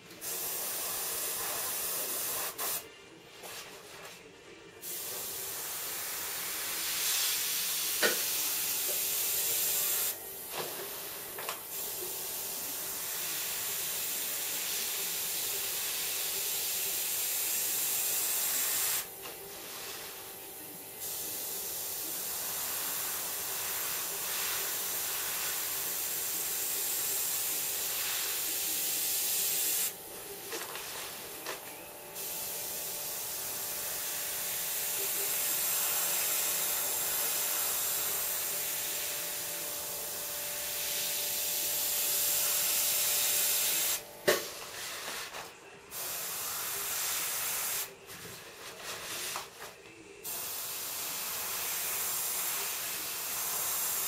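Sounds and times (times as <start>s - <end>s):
airbrush hissing: 11.0s - 30.0s, 32.2s - 44.0s.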